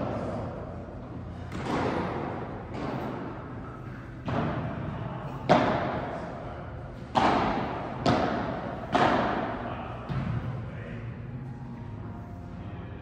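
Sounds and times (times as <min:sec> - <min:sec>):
sharp thuds echoing in hall: 0:01.3 - 0:11.1.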